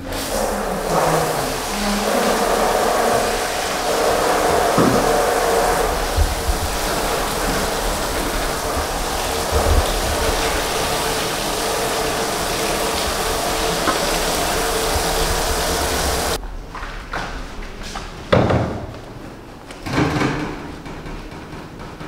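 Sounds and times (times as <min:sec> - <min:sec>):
shower water spraying: 0:00.0 - 0:16.4.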